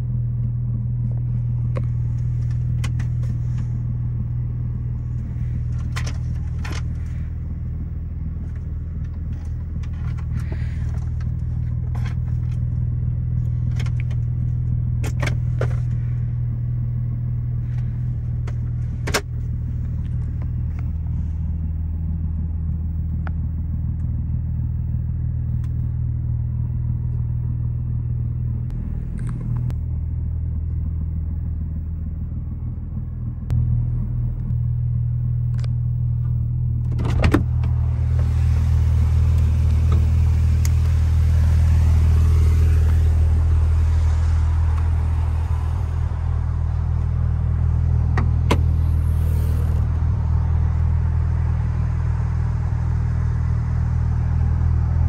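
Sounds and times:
car engine idling: 0.0s - 55.0s
car door latch clicking open: 36.9s - 37.7s.

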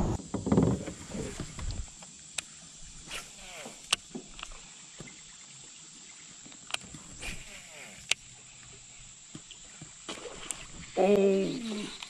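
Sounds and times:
rustling in plastic kayak: 0.0s - 2.1s.

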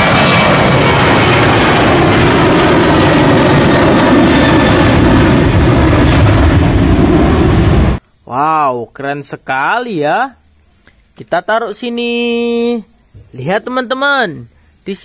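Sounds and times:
jet engines roaring: 0.0s - 8.0s
high-pitched engine whine: 0.0s - 8.9s.

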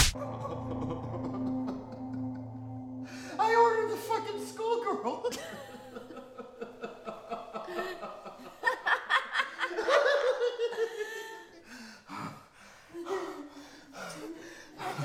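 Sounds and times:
woman laughing: 5.3s - 11.4s.

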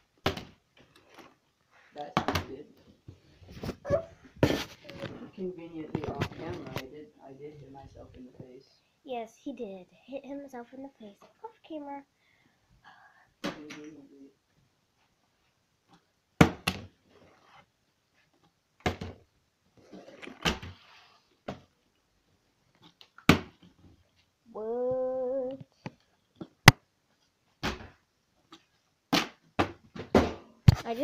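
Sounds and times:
person humming: 24.5s - 25.7s
plastic bottle thudding and clattering: 29.2s - 30.8s.

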